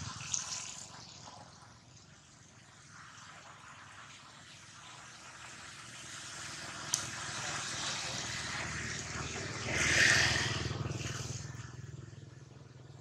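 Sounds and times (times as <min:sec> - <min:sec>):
vehicle passing by: 0:06.0 - 0:13.0.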